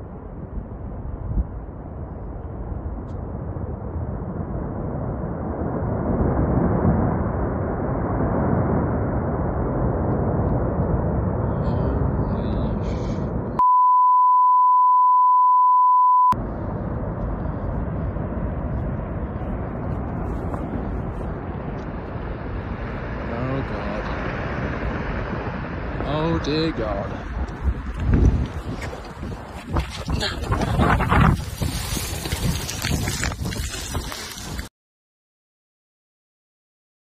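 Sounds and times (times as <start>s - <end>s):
avalanche rumble: 0.0s - 13.6s, 16.4s - 34.7s
one-tone censor bleep: 13.6s - 16.4s.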